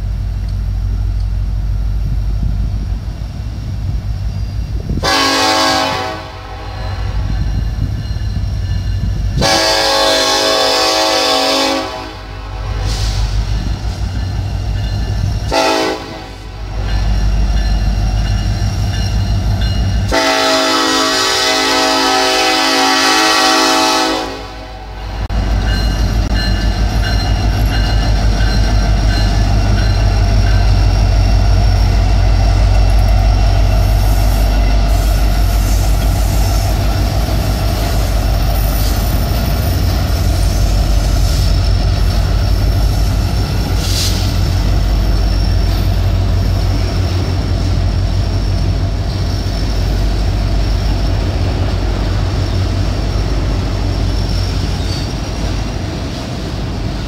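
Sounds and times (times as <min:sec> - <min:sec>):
diesel locomotive rumbling past: 0:00.0 - 0:57.0
rail cars rolling by: 0:00.0 - 0:57.0
wheel squeal: 0:04.0 - 0:05.0, 0:25.6 - 0:55.8.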